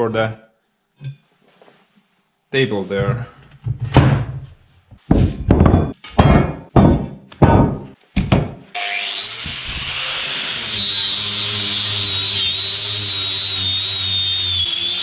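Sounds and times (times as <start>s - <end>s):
heavy knocks on wooden floor: 5.0s - 8.6s
power tool whining: 8.8s - 15.0s.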